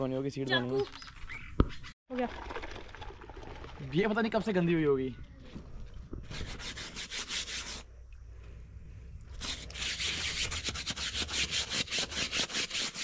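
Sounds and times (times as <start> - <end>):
brush scrubbing a seat: 9.4 - 13.0.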